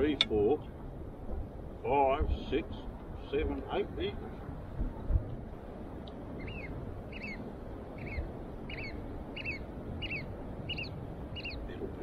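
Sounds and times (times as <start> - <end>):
bird piping calls: 6.3 - 12.0.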